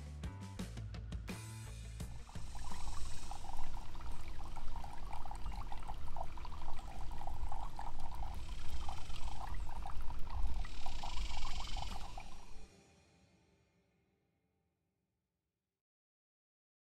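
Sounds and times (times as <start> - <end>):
fountain water trickling and splashing: 2.2 - 12.6.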